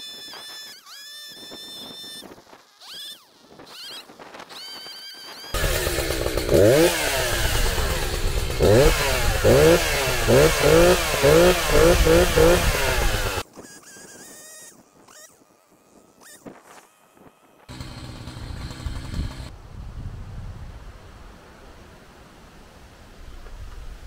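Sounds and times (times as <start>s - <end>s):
chainsaw revving: 5.5s - 13.4s, 17.7s - 19.5s.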